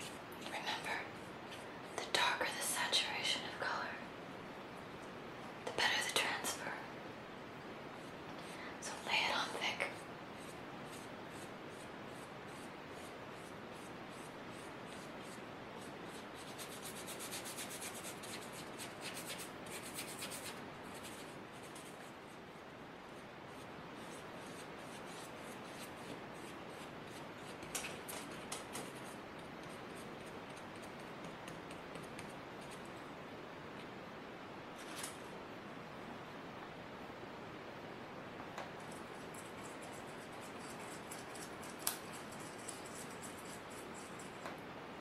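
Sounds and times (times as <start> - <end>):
faint hiss: 0.0 - 45.0
paintbrush stroking on paper: 9.9 - 33.0, 38.8 - 44.4.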